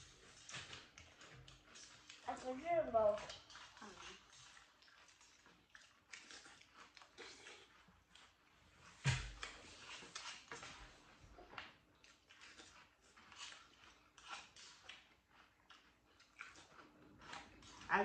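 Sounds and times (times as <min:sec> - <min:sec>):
thump: 0:09.0 - 0:09.4.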